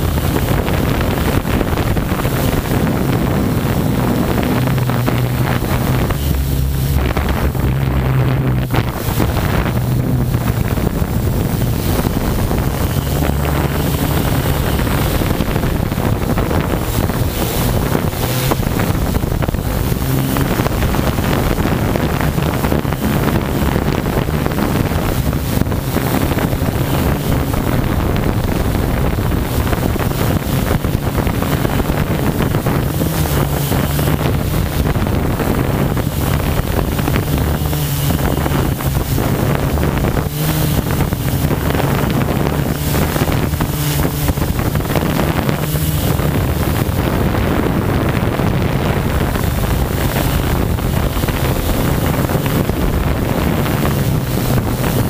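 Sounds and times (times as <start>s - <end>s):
drone motors humming: 0.0s - 55.0s
wind buffeting microphone: 0.0s - 55.0s.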